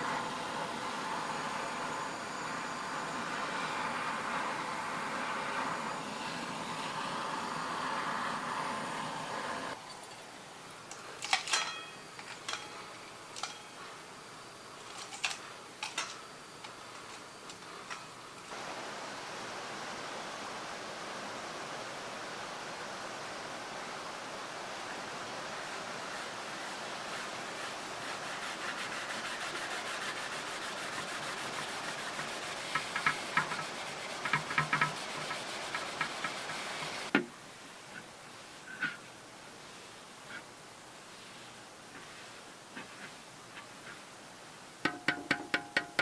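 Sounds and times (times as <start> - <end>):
faint steady hiss: 0.0 - 46.0
pad scrubbing steel pan: 26.6 - 37.1.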